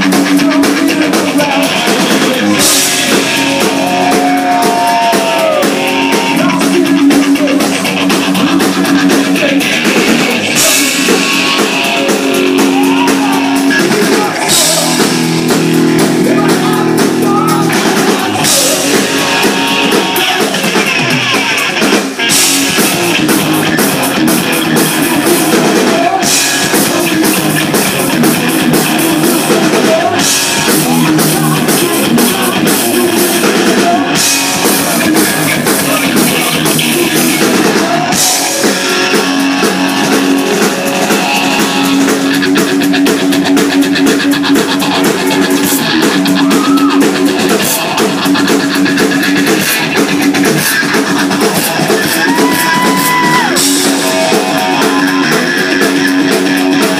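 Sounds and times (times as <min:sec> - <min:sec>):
bass guitar: 0:00.0 - 0:56.9
drum kit: 0:00.0 - 0:56.9
electric guitar: 0:00.0 - 0:56.9.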